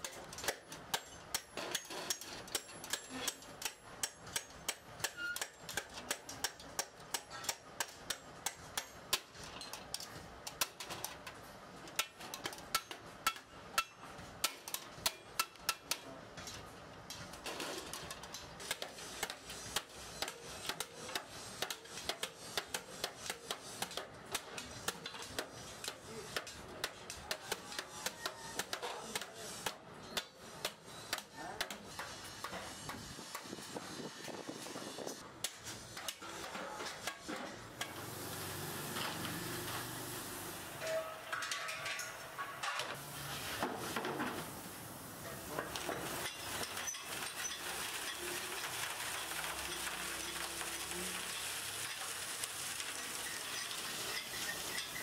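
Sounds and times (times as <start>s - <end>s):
steady background hiss: 37.6s - 55.0s.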